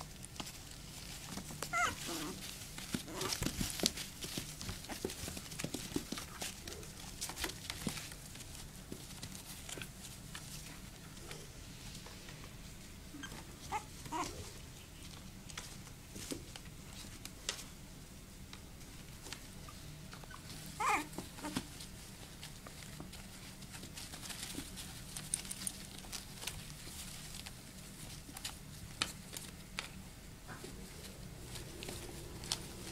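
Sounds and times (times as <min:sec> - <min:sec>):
puppies whimpering and yelping: 0:01.6 - 0:03.4, 0:13.1 - 0:14.5, 0:19.6 - 0:21.6.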